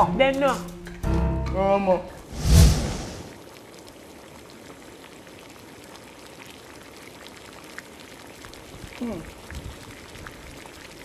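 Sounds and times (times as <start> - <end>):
water bubbling in a pot: 3.3 - 11.0.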